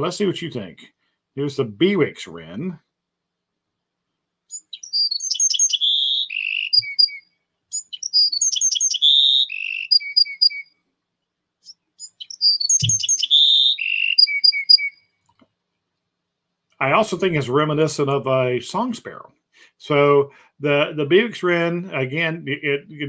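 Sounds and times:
wren singing: 0:04.5 - 0:10.7, 0:11.6 - 0:15.1.

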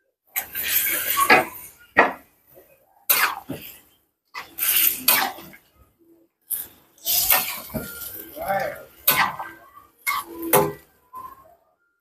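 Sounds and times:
metal utensils scraping a wok: 0:00.4 - 0:02.2, 0:03.1 - 0:03.8, 0:04.4 - 0:05.6, 0:06.5 - 0:11.3.

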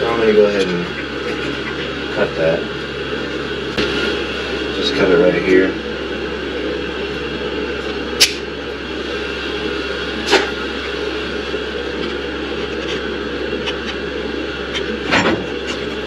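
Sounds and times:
low hum and hiss: 0:00.0 - 0:16.0.

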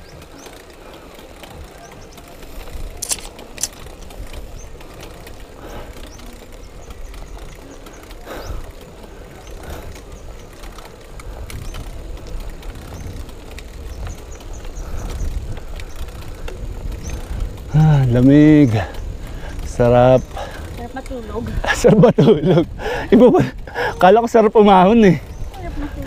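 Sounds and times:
wind rumbling on microphone: 0:00.0 - 0:26.0
sharp clicks: 0:02.9 - 0:04.2.

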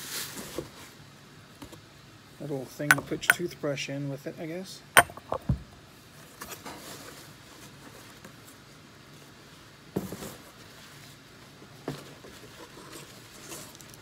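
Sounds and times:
objects knocking down: 0:05.0 - 0:05.6.

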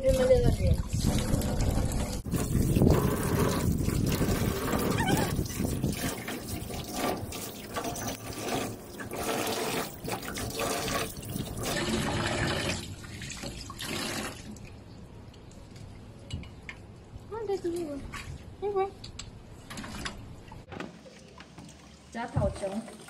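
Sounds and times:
tap water running into sink: 0:00.0 - 0:14.6, 0:20.7 - 0:23.0
water splashing: 0:00.0 - 0:14.9, 0:19.7 - 0:23.0.

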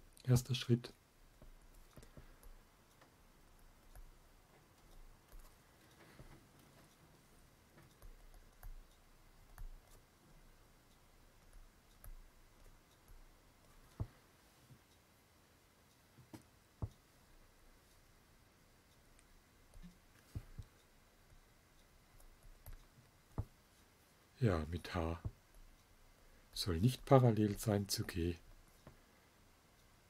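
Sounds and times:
stylus tapping on pen tablet: 0:19.7 - 0:21.4, 0:22.2 - 0:23.6.

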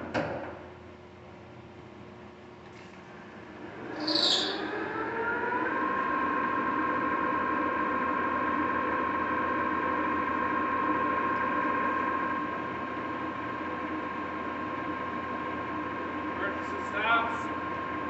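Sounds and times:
lathe mechanical whine: 0:03.0 - 0:18.0.

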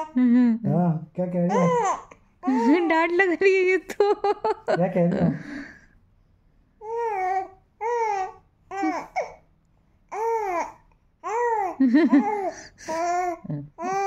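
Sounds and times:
baby cooing and babbling: 0:01.5 - 0:02.9, 0:06.8 - 0:09.4, 0:10.1 - 0:14.0.

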